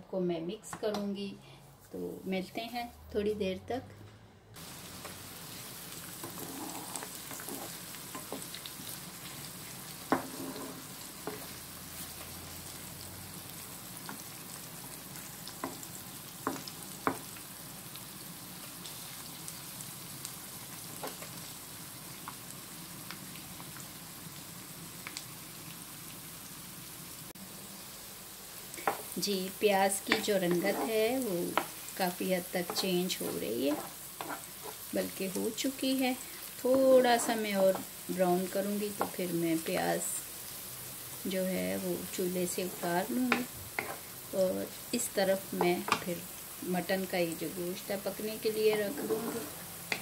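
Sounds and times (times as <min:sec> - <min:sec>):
onions sizzling in a pan: 0:04.6 - 0:50.0
spatula knocking and scraping pan: 0:06.2 - 0:08.6, 0:10.0 - 0:11.6, 0:16.4 - 0:17.3, 0:30.0 - 0:31.8, 0:32.6 - 0:34.9, 0:36.7 - 0:37.9, 0:38.9 - 0:39.2, 0:42.7 - 0:44.0, 0:45.6 - 0:46.1, 0:48.7 - 0:50.0.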